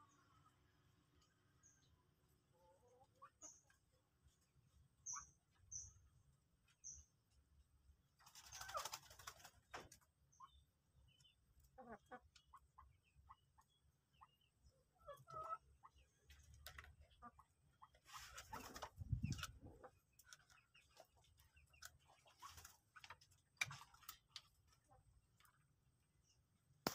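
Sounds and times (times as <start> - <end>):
birds pecking and scratching: 2.1 - 26.9
moorhens clucking: 8.2 - 25.6.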